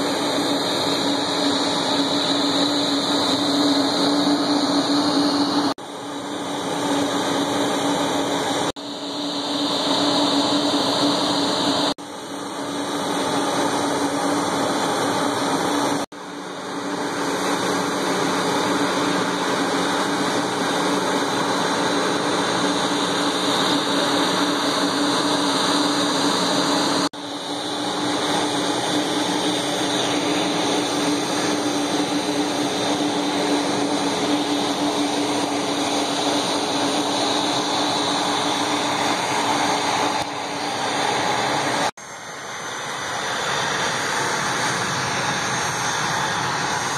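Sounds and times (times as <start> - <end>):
jet engine rushing and humming: 0.0 - 46.9.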